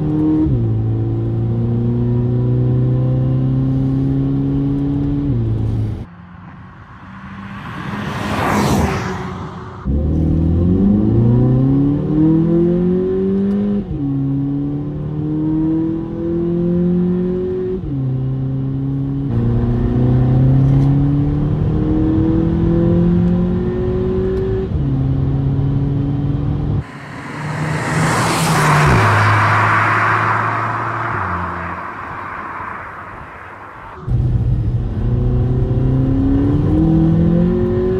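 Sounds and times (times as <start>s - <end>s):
car engine accelerating through gears: 0.0s - 6.6s, 9.8s - 37.9s
car accelerating past: 6.1s - 13.5s, 26.8s - 37.9s.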